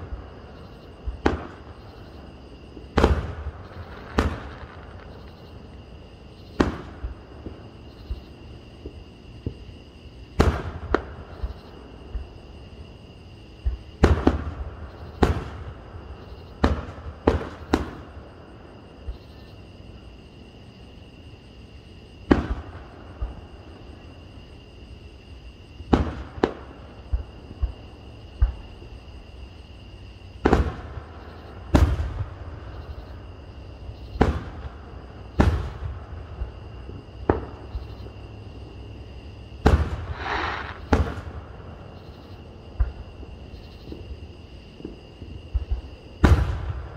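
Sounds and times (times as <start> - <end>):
fireworks bursting: 1.0 - 5.8, 6.5 - 7.6, 22.3 - 23.4, 25.9 - 28.6, 30.4 - 33.0, 34.1 - 37.9, 39.6 - 41.9, 44.8 - 46.9.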